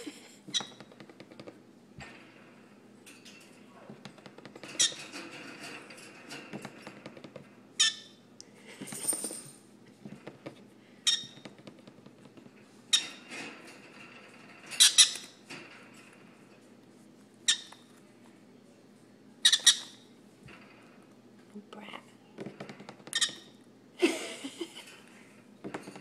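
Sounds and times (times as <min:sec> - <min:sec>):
parrot squawking: 0:19.4 - 0:20.0.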